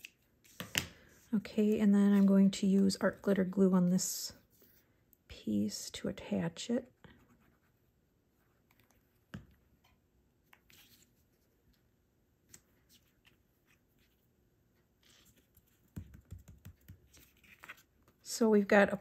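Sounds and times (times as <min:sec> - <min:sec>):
paper rustling: 0:17.1 - 0:18.2.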